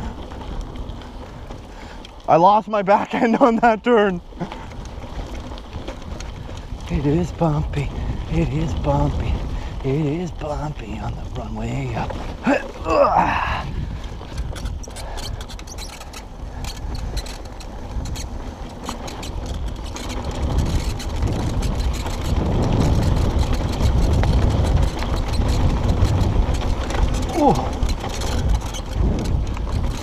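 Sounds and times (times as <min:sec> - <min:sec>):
bike rattling over bumps: 0:00.0 - 0:30.0
tyres crunching over stones: 0:00.0 - 0:30.0.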